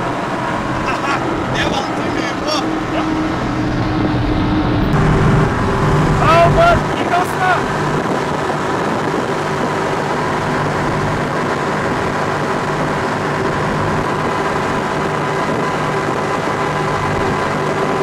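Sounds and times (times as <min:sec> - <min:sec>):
boat engines droning: 0:00.0 - 0:18.0
wind rushing: 0:00.0 - 0:18.0.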